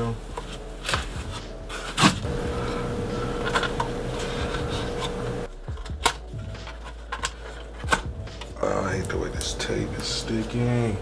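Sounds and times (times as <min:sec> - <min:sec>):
foam packing rubbing: 0:00.2 - 0:05.5.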